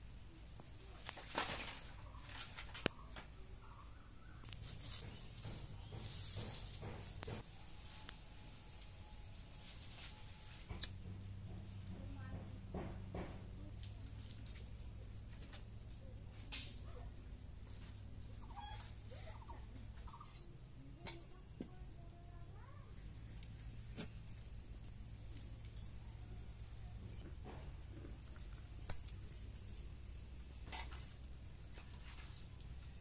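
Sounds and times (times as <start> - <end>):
faint bird chirps: 0.0 - 6.3, 13.6 - 23.0
low steady hum: 0.0 - 33.0.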